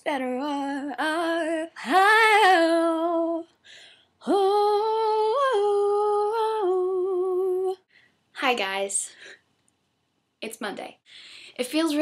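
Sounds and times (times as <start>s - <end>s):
woman singing unaccompanied: 0.0s - 3.5s, 4.2s - 7.8s
woman breathing: 3.5s - 4.2s, 7.8s - 8.3s, 9.1s - 9.5s, 11.0s - 11.6s.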